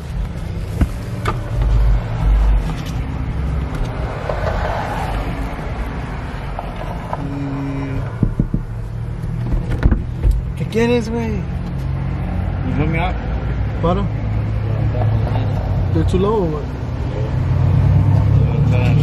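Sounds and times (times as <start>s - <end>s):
vehicle cabin hum: 0.0s - 11.9s.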